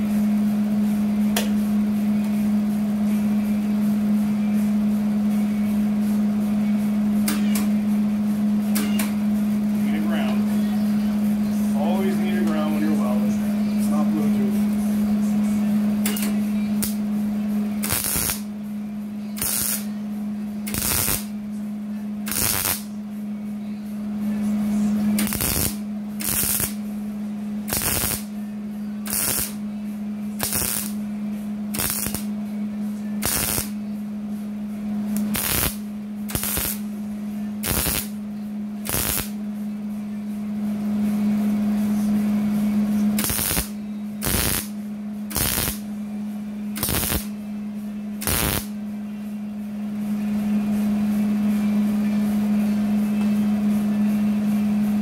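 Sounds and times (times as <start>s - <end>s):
steady low hum: 0.0s - 55.0s
welder arc bursts: 17.8s - 18.5s, 19.4s - 19.9s, 20.7s - 21.3s, 22.3s - 22.9s, 25.2s - 26.8s, 27.7s - 28.3s, 29.1s - 29.6s, 30.4s - 31.0s, 31.7s - 32.3s, 33.2s - 33.8s, 35.2s - 36.8s, 37.6s - 38.1s, 38.8s - 39.3s, 43.2s - 44.7s, 45.3s - 45.8s, 46.8s - 47.3s, 48.2s - 48.7s.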